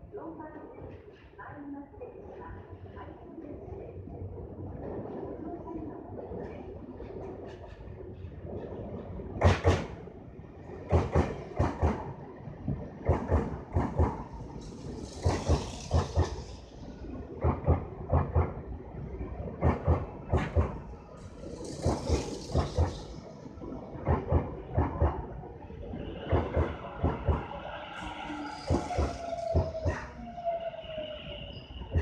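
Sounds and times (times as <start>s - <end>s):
low train rumble: 0.0s - 32.0s
train wheels clacking on rail joints: 9.4s - 10.0s, 10.8s - 16.7s, 17.3s - 18.7s, 19.5s - 23.3s, 24.0s - 25.3s, 26.2s - 27.6s, 28.4s - 30.1s.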